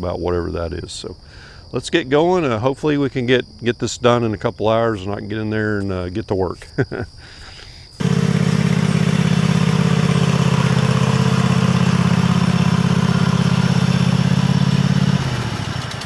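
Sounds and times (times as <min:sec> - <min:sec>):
lawn tractor engine running: 0:08.0 - 0:16.0.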